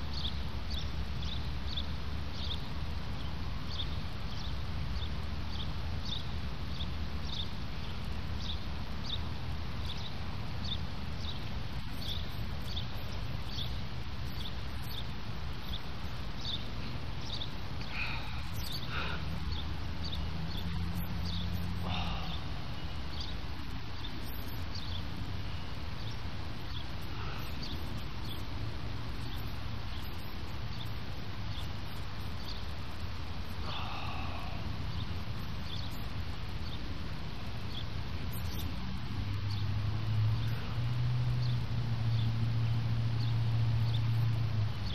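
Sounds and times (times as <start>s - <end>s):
faint bird chirps: 0.0s - 38.8s
low outdoor rumble: 0.0s - 44.9s
small animal chirping: 24.0s - 24.9s, 29.2s - 31.0s.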